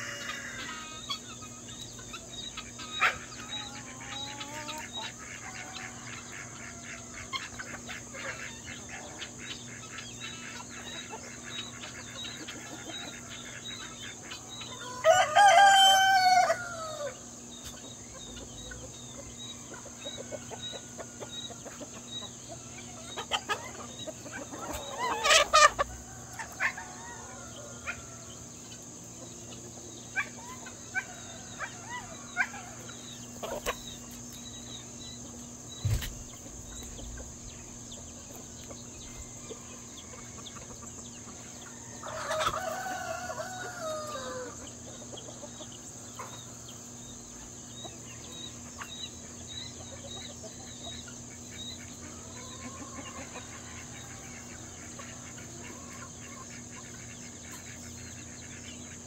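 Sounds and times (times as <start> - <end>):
rooster crowing: 0.0 - 1.0, 14.7 - 17.2, 24.7 - 28.5, 41.4 - 44.8
chickens clucking: 0.0 - 59.0.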